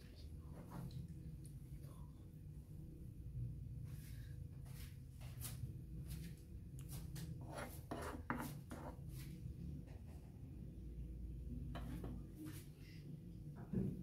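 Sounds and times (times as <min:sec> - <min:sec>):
spoon scraping on wooden board: 0:07.4 - 0:09.2, 0:11.8 - 0:12.2.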